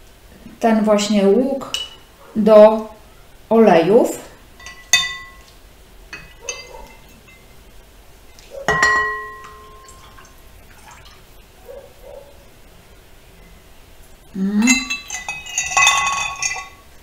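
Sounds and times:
glass jar clinking on ceramic bowl: 4.6 - 5.5, 6.1 - 7.5, 8.7 - 10.2, 14.7 - 16.9
liquid pouring: 9.0 - 11.4.

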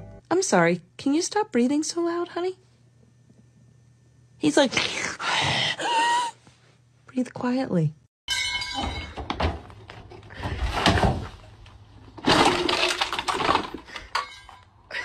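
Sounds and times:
plastic and metal cracking: 9.2 - 14.6.

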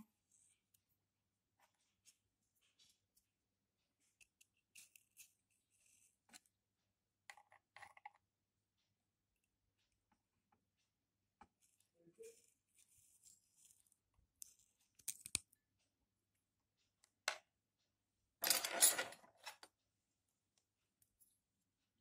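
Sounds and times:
small clicks and taps: 14.4 - 15.6.

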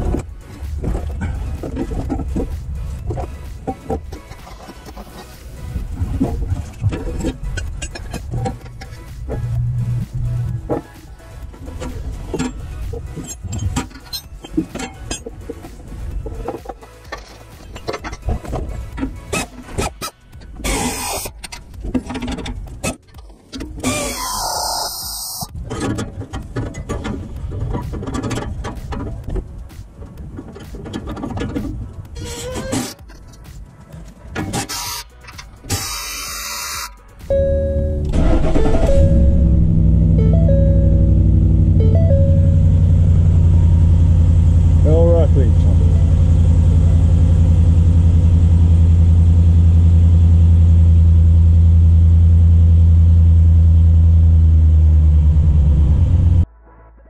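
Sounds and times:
truck engine droning: 0.0 - 19.3, 36.4 - 56.4
metal clamp clicking and scraping: 6.6 - 9.1.

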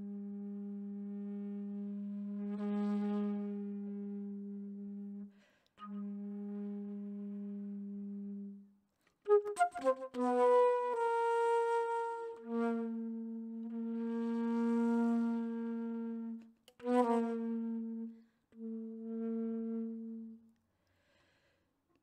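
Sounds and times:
flute playing: 9.3 - 20.3.

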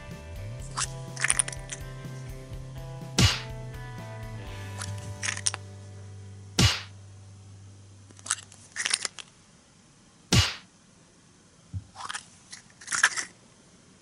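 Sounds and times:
sharp thuds: 3.2 - 3.6, 6.6 - 7.0, 10.3 - 10.7.

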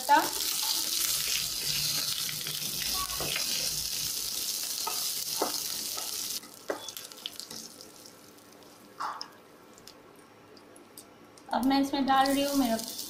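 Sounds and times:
spices sizzling in hot oil: 0.0 - 8.8, 12.1 - 13.0.

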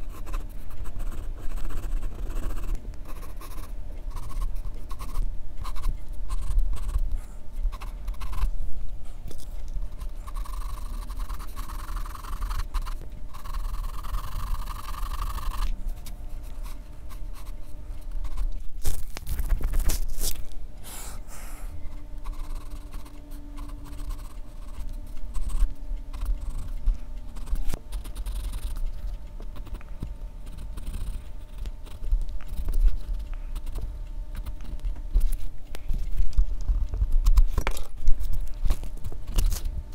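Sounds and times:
pencil scratching on paper: 10.0 - 15.7, 16.4 - 18.5.

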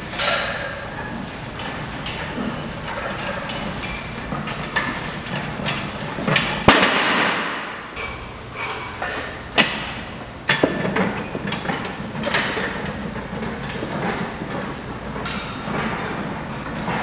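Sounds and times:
metal frame and plates clanking: 0.0 - 17.0
loud metal clang: 6.6 - 7.9.

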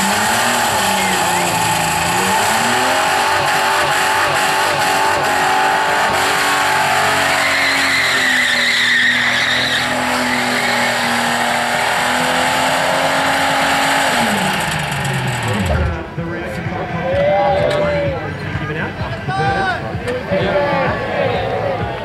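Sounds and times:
car engine at high revs: 0.0 - 16.2
tyres squealing: 6.3 - 11.8.

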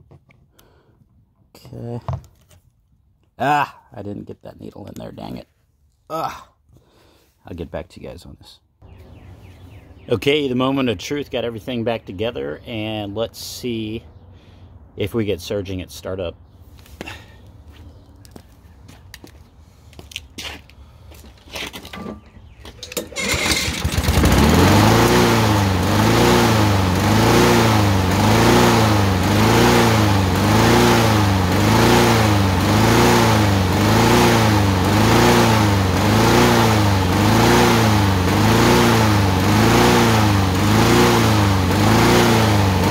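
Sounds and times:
lawnmower engine surging: 22.9 - 42.9.

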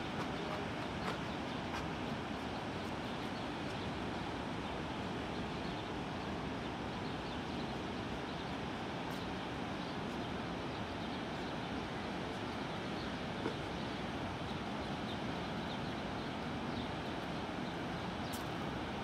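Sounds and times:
distant tram rush: 0.0 - 3.6
river flowing: 0.0 - 19.0.

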